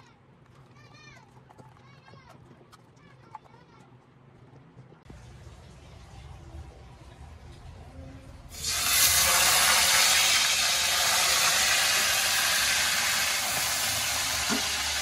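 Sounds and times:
hot oil sizzling in a wok: 8.5 - 15.0.

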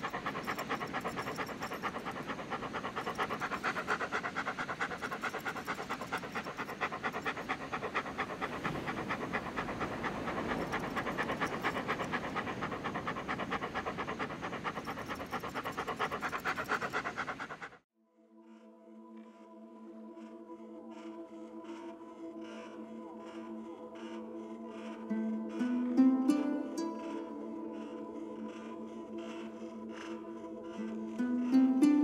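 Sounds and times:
dog panting: 0.0 - 17.8, 18.4 - 32.0.

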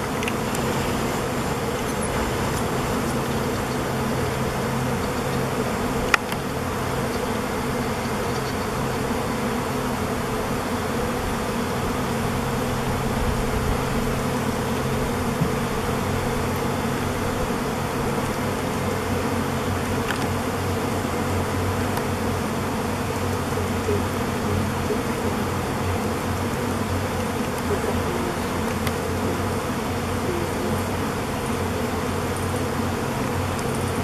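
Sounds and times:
bee swarm buzzing: 0.0 - 34.0.

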